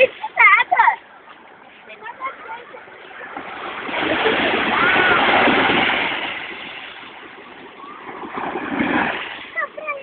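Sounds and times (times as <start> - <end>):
sea wave washing up sand: 3.3 - 9.8.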